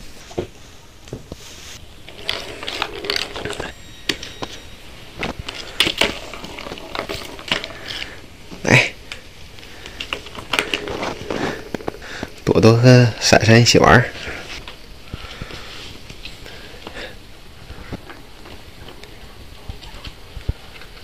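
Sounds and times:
plastic balls clicking and rattling: 2.0 - 12.5.

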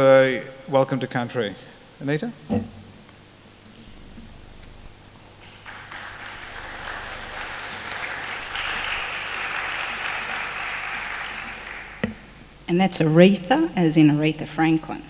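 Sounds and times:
audience applauding: 5.4 - 12.4.

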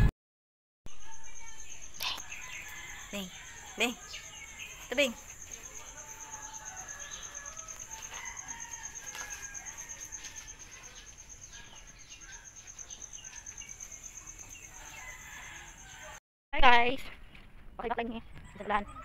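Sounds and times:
pulsing insect trill: 0.9 - 16.2.

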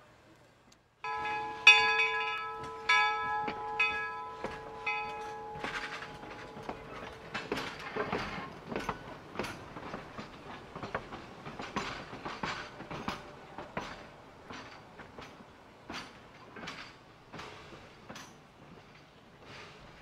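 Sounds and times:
steam locomotive bell ringing: 1.0 - 14.9
wheels clattering on rails: 1.0 - 20.0
steam locomotive chuffing: 1.1 - 20.0.

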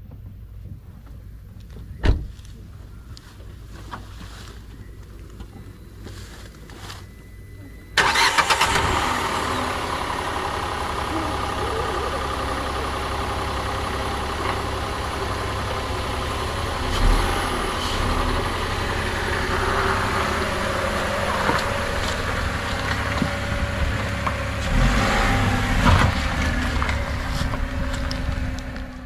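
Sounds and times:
car engine idling: 0.0 - 29.0.

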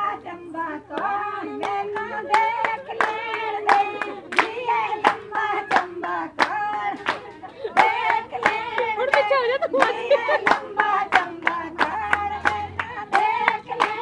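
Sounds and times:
women singing folk song: 0.0 - 14.0
steady hand-clapping: 0.9 - 14.0.

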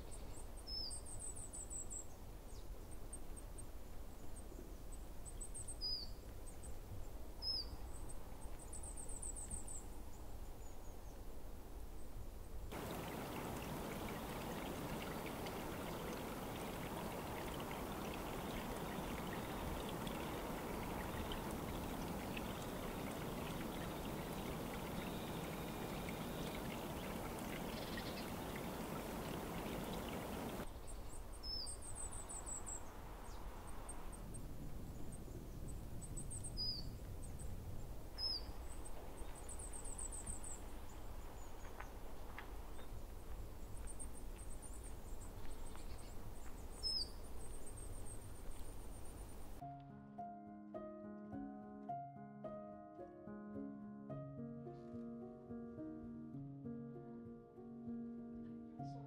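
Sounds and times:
small birds chirping: 12.6 - 37.6, 38.2 - 49.6
stream water rushing: 12.7 - 30.7
downward-sweeping bird calls: 17.8 - 33.5.

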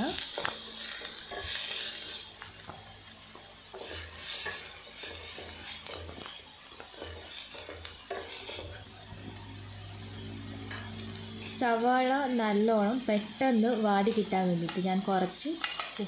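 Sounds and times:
wooden spatula scraping a pot: 0.0 - 2.7, 3.3 - 9.0
light sizzle of oil: 0.0 - 16.0.

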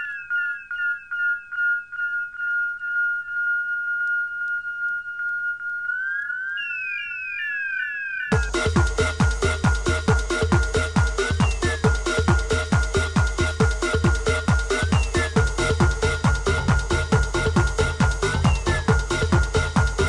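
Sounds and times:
synthesizer pitch glides: 5.5 - 20.0
techno beat with kick drum: 8.3 - 20.0.

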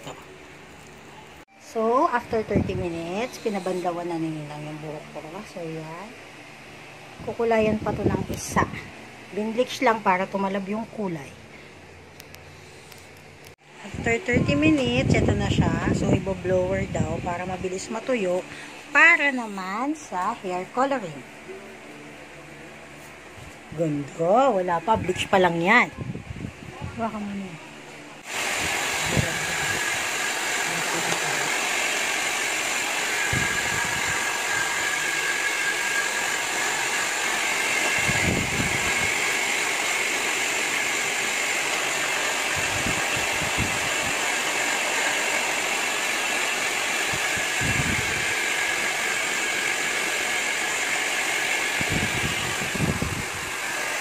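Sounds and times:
hair dryer blowing: 2.1 - 10.4, 13.6 - 21.2, 28.2 - 54.0.

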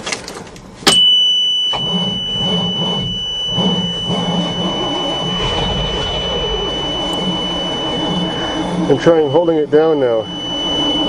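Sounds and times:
engine cranking without starting: 1.7 - 9.5
steady high-pitched tone: 1.7 - 11.0.

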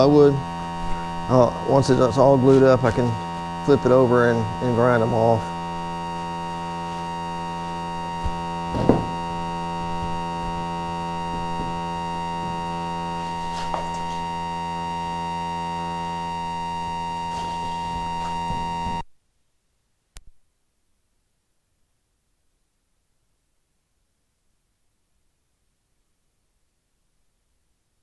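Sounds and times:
electronic buzz: 0.0 - 19.1.

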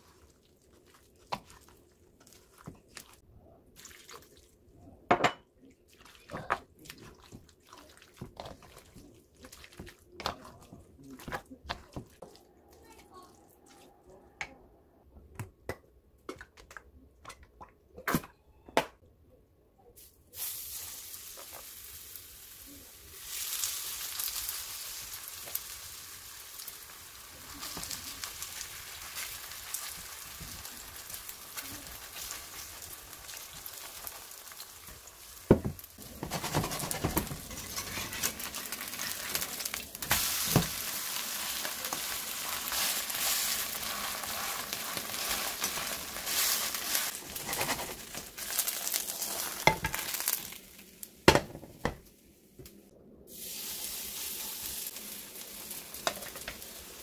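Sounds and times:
batter sizzling in a pan: 20.3 - 51.3, 53.3 - 57.0.

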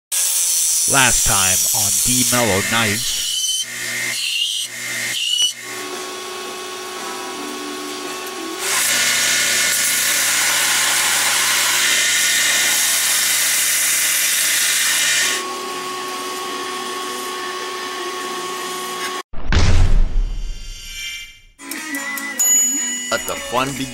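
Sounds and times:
steel grinding hiss on belt: 0.2 - 3.6
belt grinder motor hum: 0.6 - 19.2.

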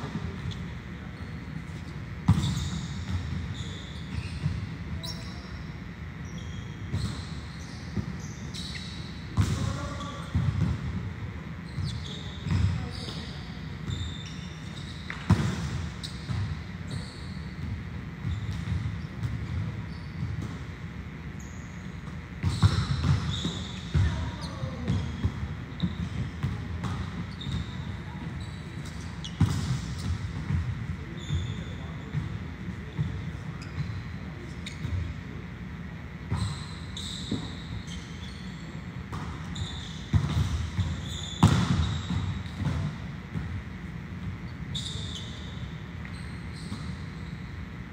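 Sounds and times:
balls thudding and bouncing: 40.1 - 44.4.

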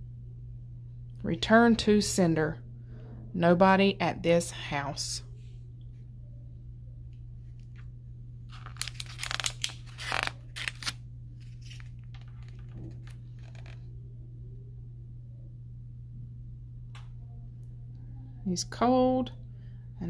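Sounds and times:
steady low hum: 0.0 - 20.0
book pages turning: 8.5 - 13.8.

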